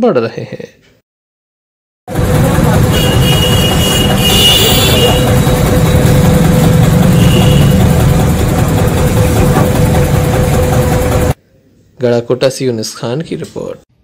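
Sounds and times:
tractor engine running: 2.1s - 11.4s.

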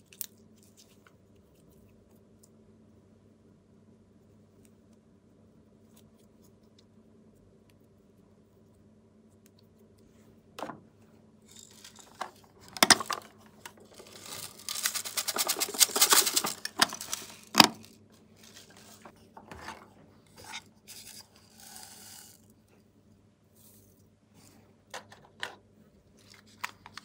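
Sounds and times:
plastic toy pieces clicking: 11.5s - 17.9s
plastic pieces rattling: 11.5s - 19.1s.

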